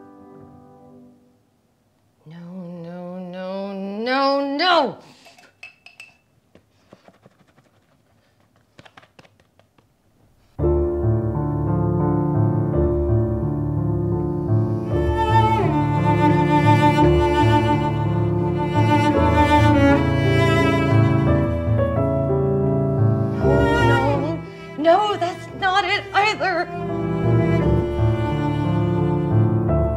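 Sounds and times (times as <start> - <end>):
dense low strings: 13.0 - 24.6.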